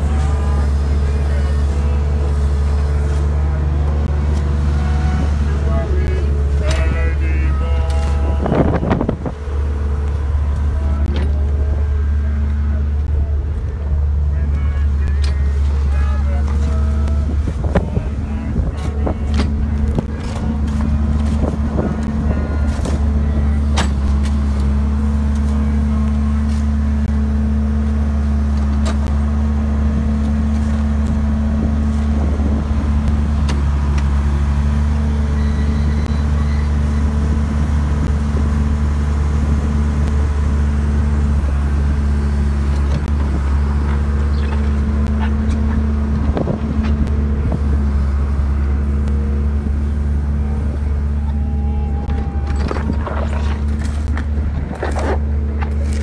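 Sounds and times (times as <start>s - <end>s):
engine running steadily: 0.0s - 56.0s.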